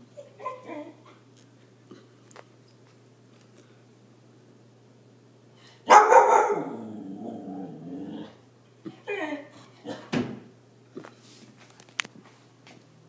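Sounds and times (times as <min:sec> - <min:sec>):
puppy barking and grumbling: 0:05.9 - 0:08.4.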